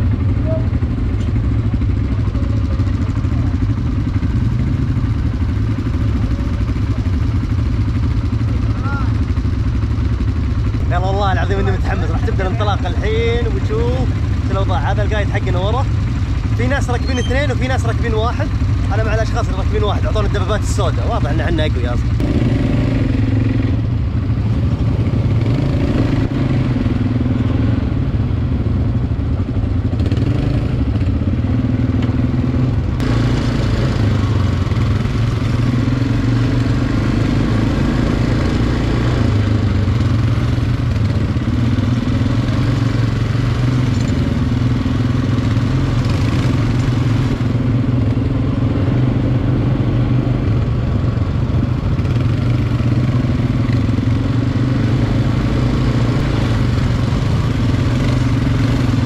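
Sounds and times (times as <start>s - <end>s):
quad bike engine revving: 0.0s - 59.0s.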